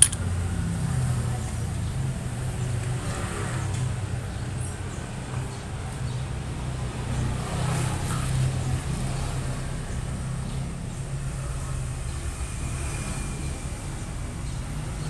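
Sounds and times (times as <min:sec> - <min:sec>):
vehicle engine rumbling: 0:00.0 - 0:06.2.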